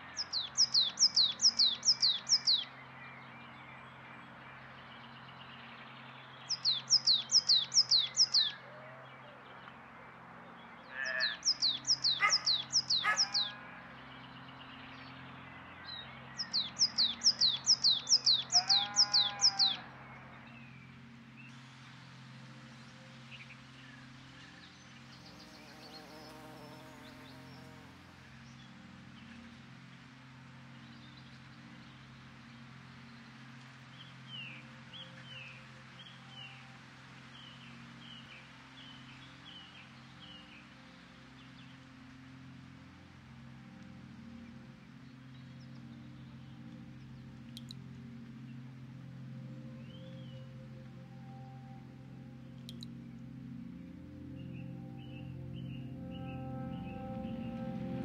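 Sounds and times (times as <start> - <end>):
low hum and hiss: 0.0 - 58.0
songbird singing: 0.0 - 58.0
harsh bird calls: 10.9 - 14.2, 16.4 - 20.4.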